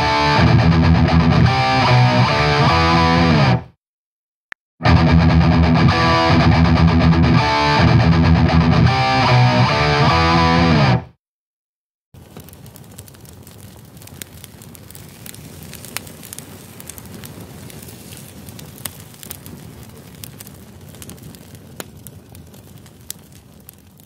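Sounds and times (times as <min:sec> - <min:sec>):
low crackling with clicks and pops: 0:12.2 - 0:24.0.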